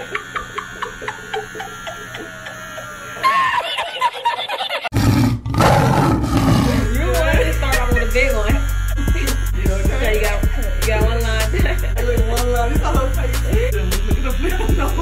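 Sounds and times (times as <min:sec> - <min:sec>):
tattoo machine buzzing: 0:00.0 - 0:04.8, 0:06.2 - 0:15.0
man's high wheezing laughter: 0:00.0 - 0:05.0
girl screaming: 0:03.2 - 0:03.7.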